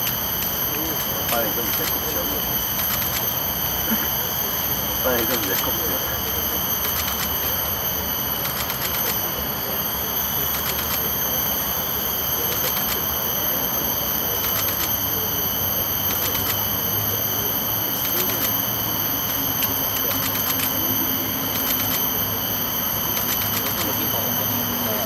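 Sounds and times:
high-pitched whine: 0:00.0 - 0:25.0.

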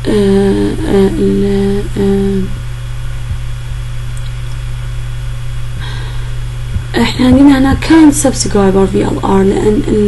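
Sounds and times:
person humming hesitantly: 0:00.0 - 0:02.6
low electrical hum: 0:00.0 - 0:10.0.

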